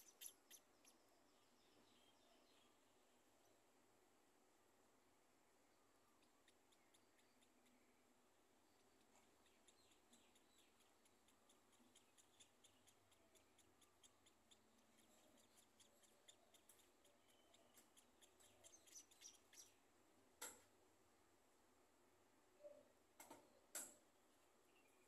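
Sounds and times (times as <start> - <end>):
nestlings cheeping: 0.0 - 1.0, 9.4 - 19.8.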